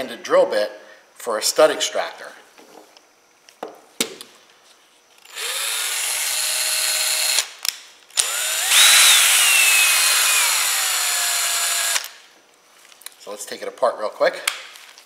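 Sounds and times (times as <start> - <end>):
cordless drill whining: 5.2 - 7.5, 8.2 - 12.2
drill clicks: 5.3 - 7.5, 8.2 - 12.2.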